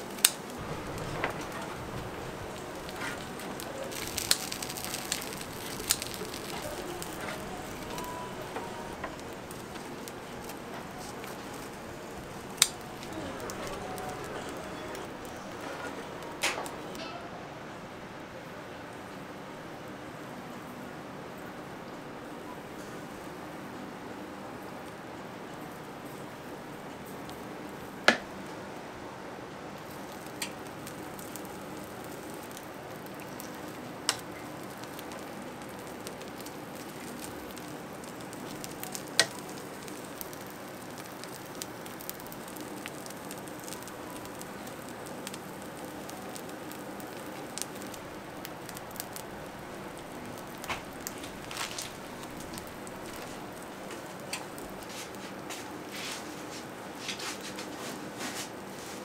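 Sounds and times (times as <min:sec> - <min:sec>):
batter sizzling in molds: 0:00.0 - 0:17.0, 0:29.8 - 0:59.0.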